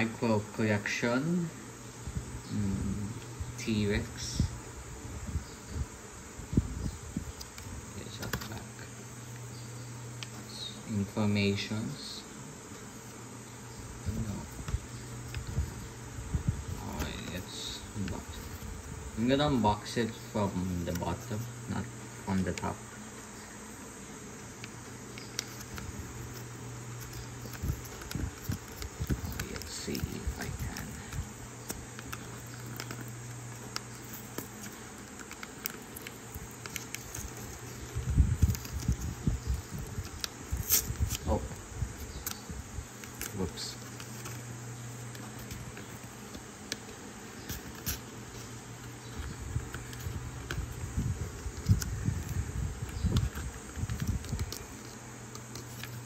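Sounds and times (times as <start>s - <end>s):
low hum and hiss: 0.0s - 56.0s
hands rubbing packaging: 13.9s - 22.8s, 24.3s - 56.0s
blister pack clicks and crinkles: 24.5s - 56.0s.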